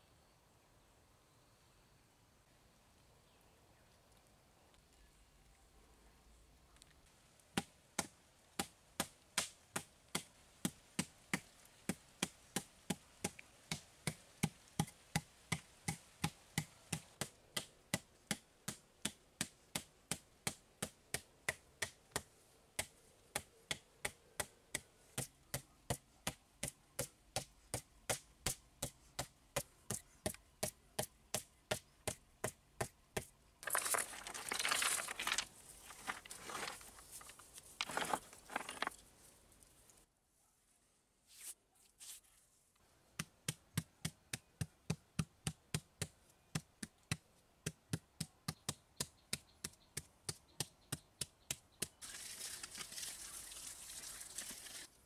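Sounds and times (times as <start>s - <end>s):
scraping rustle: 33.6s - 40.0s.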